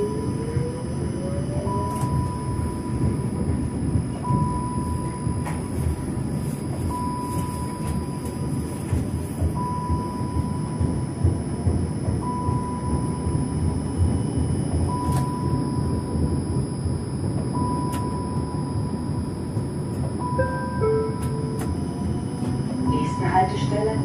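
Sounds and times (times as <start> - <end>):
tram wheels rumbling on track: 0.0 - 24.0
cab beep: 4.1 - 5.7, 6.9 - 8.6, 9.5 - 11.3, 12.2 - 16.2, 17.5 - 19.4, 20.0 - 24.0.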